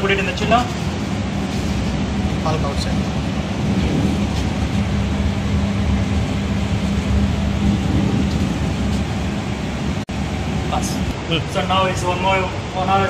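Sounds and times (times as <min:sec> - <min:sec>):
low machinery hum: 0:00.0 - 0:13.0
even rushing noise: 0:00.5 - 0:12.8.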